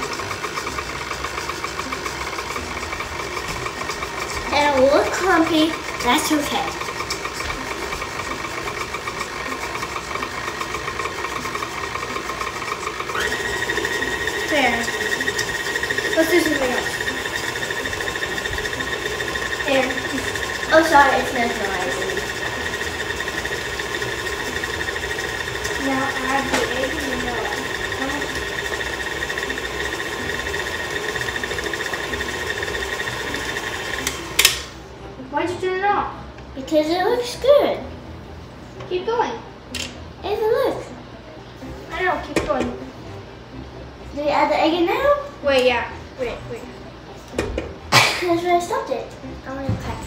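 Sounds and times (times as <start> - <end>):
electric mixer whirring: 0.0 - 34.8.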